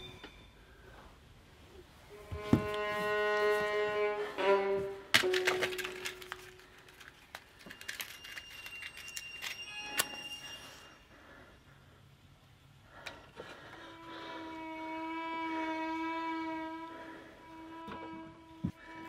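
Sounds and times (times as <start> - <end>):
eerie bowed string music: 2.1 - 6.6, 13.5 - 19.0
thin high tone: 7.3 - 11.8.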